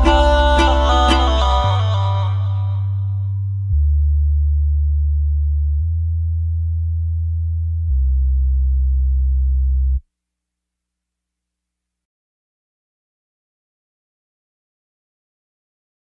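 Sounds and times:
electronic bass tones: 0.0 - 10.0.

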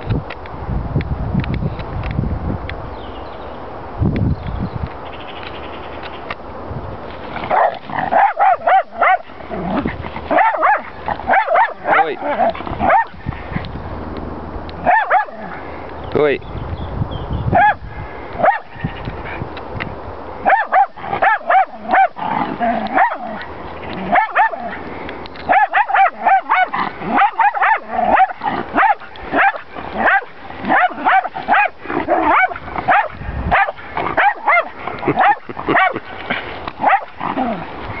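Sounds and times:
dog yapping shrilly: 7.5 - 13.2, 14.8 - 15.6, 17.5 - 17.8, 18.4 - 18.8, 20.4 - 23.4, 24.0 - 24.8, 25.5 - 36.0, 36.8 - 37.6.

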